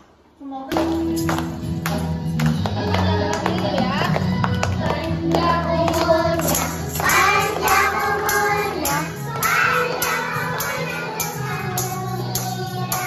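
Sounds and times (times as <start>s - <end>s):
backing music: 0.7s - 13.0s
children clapping: 0.8s - 13.0s
children singing: 4.9s - 13.0s.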